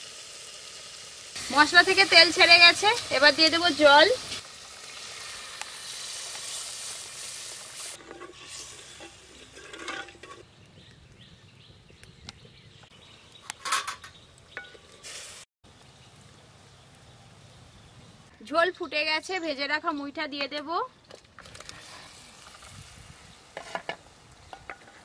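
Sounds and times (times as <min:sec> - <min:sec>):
hot oil hissing and sizzling: 0:00.0 - 0:10.5, 0:14.7 - 0:17.9, 0:21.4 - 0:25.0
utensils scraping and clinking: 0:07.8 - 0:10.4, 0:13.5 - 0:14.9.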